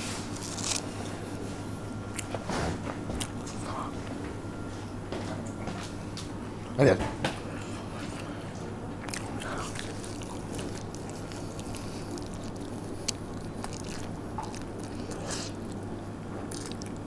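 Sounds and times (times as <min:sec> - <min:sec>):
steady low hum: 0:00.0 - 0:17.0
person chewing a burger: 0:00.3 - 0:02.5, 0:07.5 - 0:17.0.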